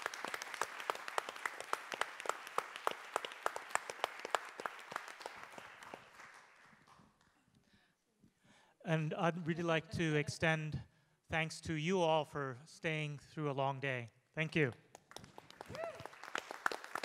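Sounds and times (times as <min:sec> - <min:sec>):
audience applause: 0:00.0 - 0:07.2, 0:15.0 - 0:17.0.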